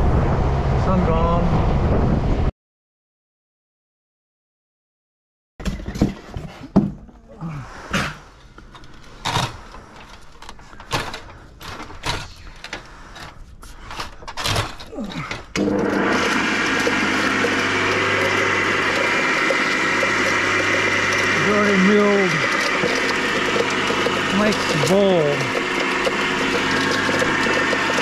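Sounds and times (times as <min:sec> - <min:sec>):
electric garden shredder humming: 0:15.1 - 0:28.0.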